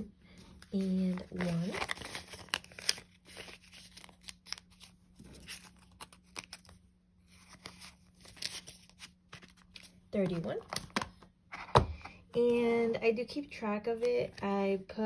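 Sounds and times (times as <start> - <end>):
paper banknotes rustling: 0.5 - 10.8.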